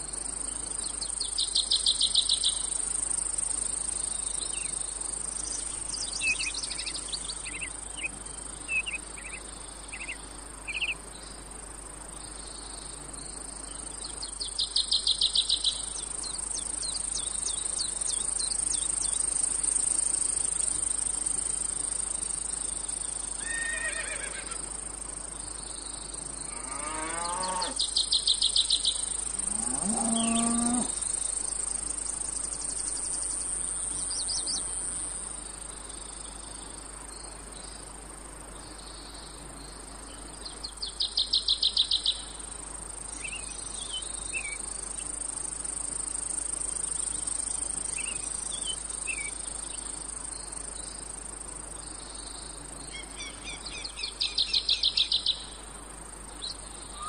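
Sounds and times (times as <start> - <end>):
cicadas droning: 0.0 - 57.0
rapid pulsed insect chirping: 0.0 - 57.0
cow mooing: 26.5 - 27.8, 29.5 - 30.9.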